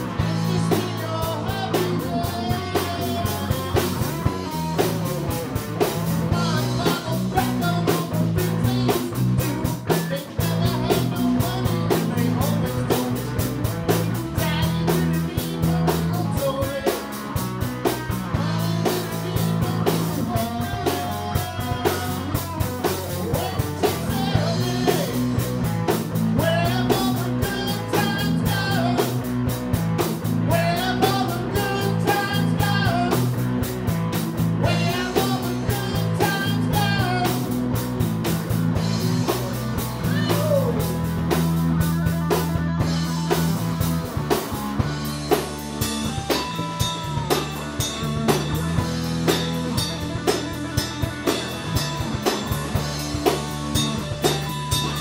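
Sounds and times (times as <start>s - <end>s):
man singing: 0.0s - 5.2s, 6.2s - 33.6s, 34.5s - 37.8s, 39.7s - 43.9s
bass guitar: 0.0s - 55.0s
drums: 0.0s - 55.0s
electric guitar: 0.0s - 55.0s.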